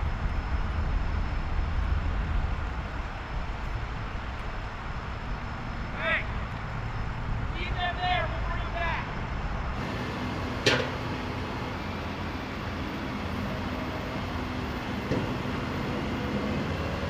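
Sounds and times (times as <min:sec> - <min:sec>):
roadside traffic rumble: 0:00.0 - 0:17.0.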